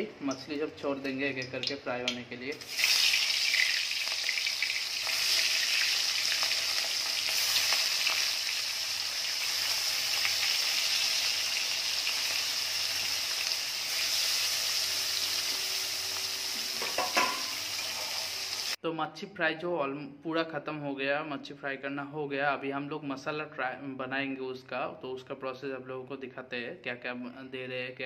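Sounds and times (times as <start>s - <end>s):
fish frying in oil: 2.6s - 18.8s.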